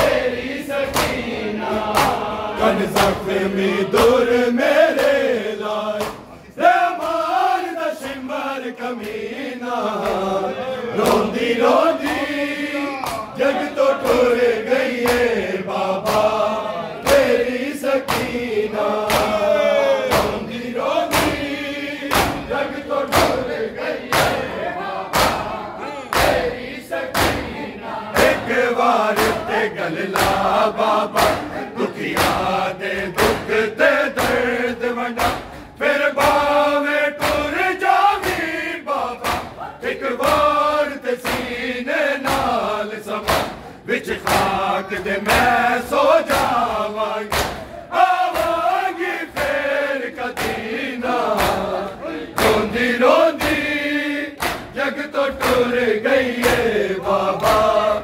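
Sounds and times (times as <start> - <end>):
hands slapping chests: 0.0 - 3.3, 6.0 - 6.4, 12.0 - 13.4, 14.0 - 15.4, 16.0 - 16.4, 17.0 - 17.4, 18.0 - 24.5, 25.1 - 27.5, 28.2 - 58.0
men chanting in unison: 0.0 - 58.0.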